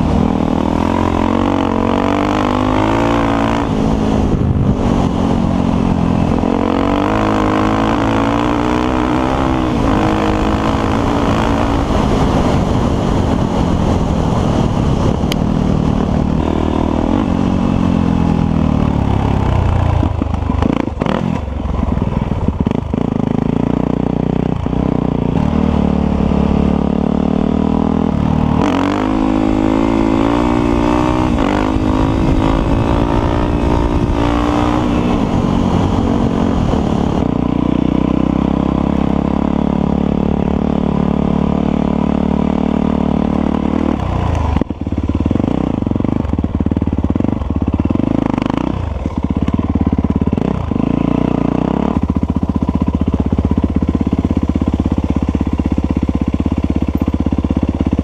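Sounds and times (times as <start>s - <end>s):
dirt bike engine revving: 0.0s - 21.5s, 22.6s - 58.0s.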